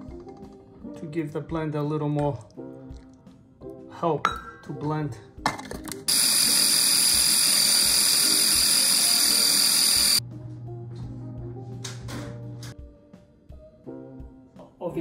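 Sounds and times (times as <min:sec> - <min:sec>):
food processor motor whining: 0:06.1 - 0:10.2.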